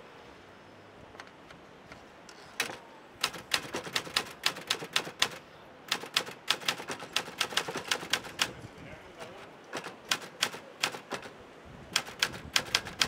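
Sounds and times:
typewriter key strikes: 0:02.6 - 0:08.5, 0:09.8 - 0:11.3, 0:12.0 - 0:13.0.

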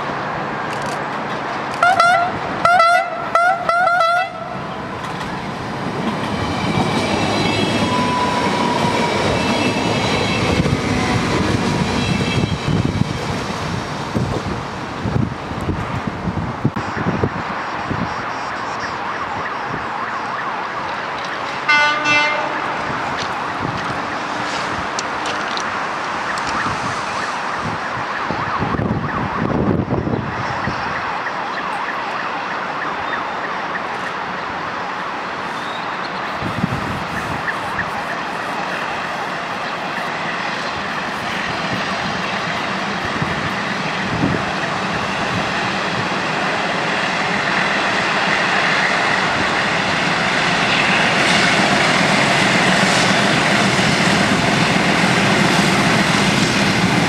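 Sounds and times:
freight train rumble: 0:00.0 - 0:19.9, 0:20.8 - 0:28.0, 0:33.8 - 0:57.0
train horn blast: 0:01.8 - 0:04.4, 0:21.6 - 0:22.9.

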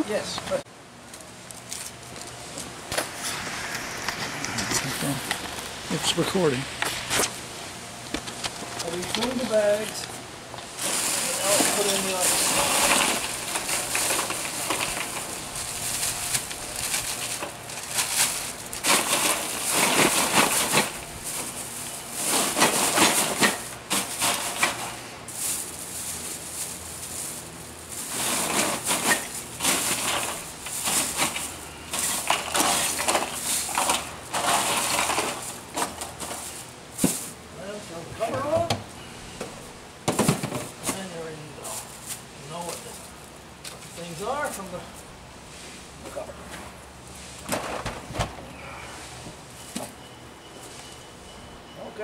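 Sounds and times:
plastic bags crinkling: 0:10.6 - 0:37.4
ice cubes clattering and crunching: 0:10.8 - 0:37.3.

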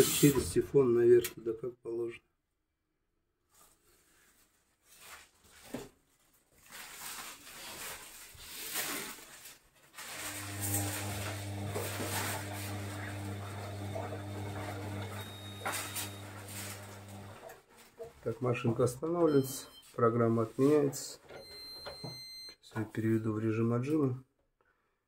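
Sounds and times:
washing machine swishing: 0:10.0 - 0:17.5
washing machine motor hum: 0:10.2 - 0:17.5.

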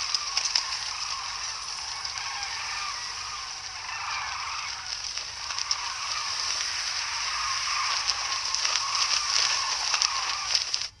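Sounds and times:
cloth banner flapping in wind: 0:00.0 - 0:11.0.

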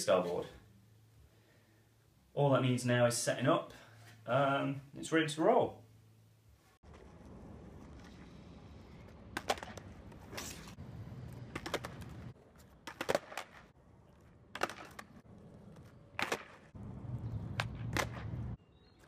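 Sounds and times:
skateboard wheels rolling on concrete: 0:06.6 - 0:19.0
skateboard deck clacking: 0:11.4 - 0:13.7, 0:14.5 - 0:15.2.

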